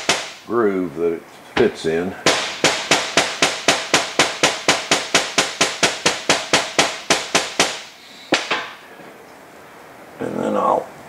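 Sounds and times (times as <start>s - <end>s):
hammer tapping rapidly: 2.3s - 7.8s.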